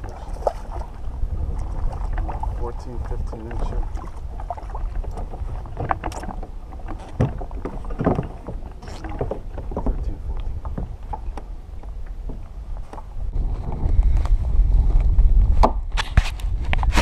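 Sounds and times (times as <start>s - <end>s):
water slapping against kayak: 0.0s - 17.0s
wind buffeting microphone: 0.0s - 17.0s
knocks and rustles of fish handling: 2.0s - 14.2s.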